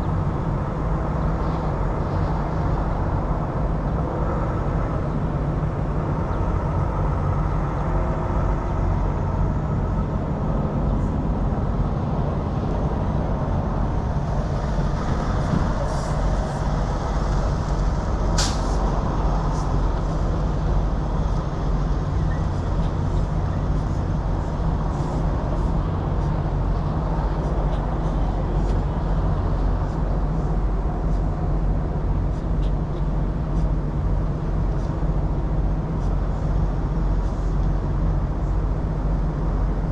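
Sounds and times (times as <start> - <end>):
diesel truck engine idling: 0.0 - 39.9
air release hiss: 18.4 - 18.8.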